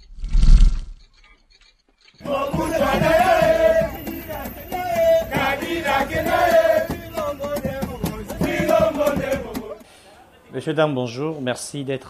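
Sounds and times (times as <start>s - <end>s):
men chanting in unison: 2.2s - 9.9s.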